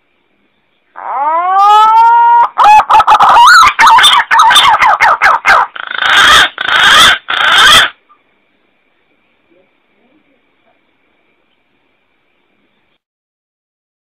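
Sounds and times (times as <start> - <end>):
harsh rasping bird notes: 2.6 - 8.0.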